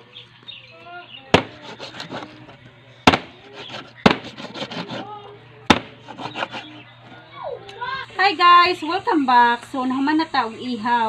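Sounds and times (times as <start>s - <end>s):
cleaver chopping on cutting board: 1.4s - 2.3s, 3.1s - 5.0s, 5.7s - 6.6s.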